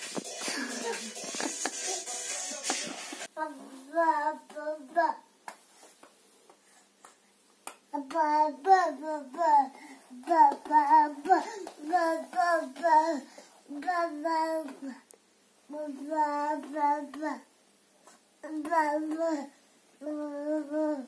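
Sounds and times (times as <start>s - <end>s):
child singing sing-song melody: 3.4s - 5.3s, 7.9s - 15.0s, 15.7s - 17.5s, 18.4s - 21.0s.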